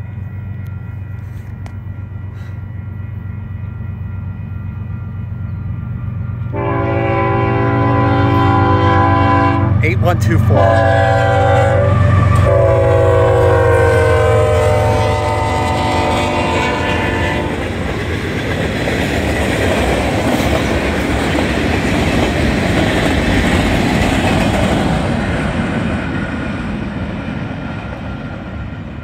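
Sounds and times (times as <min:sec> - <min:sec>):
locomotive horn blasts: 0:06.5 - 0:09.8, 0:10.4 - 0:17.6.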